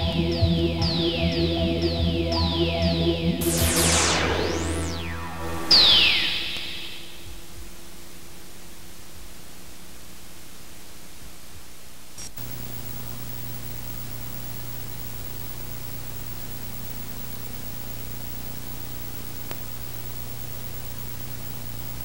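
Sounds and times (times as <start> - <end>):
low hum: 3.4 - 7.8
tape hiss: 3.4 - 11.2, 12.2 - 22.0.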